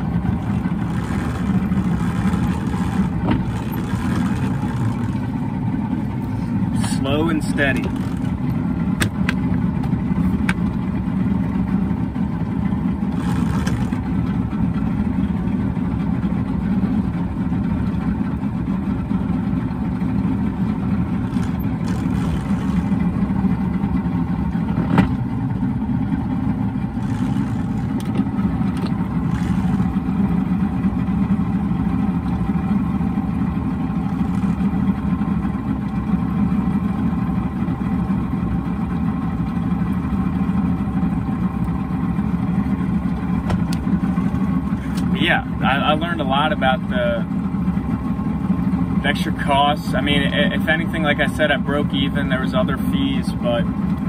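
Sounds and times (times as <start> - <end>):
outboard engine running: 0.0 - 54.0.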